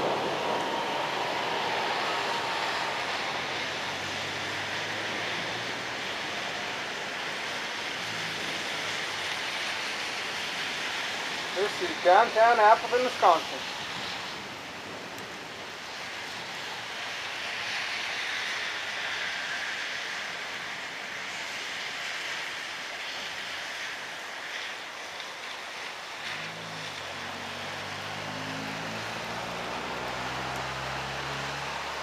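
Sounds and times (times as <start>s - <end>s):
vehicle engine rising in pitch: 0.0s - 5.7s, 26.4s - 32.0s
heavy rain hissing: 0.0s - 32.0s.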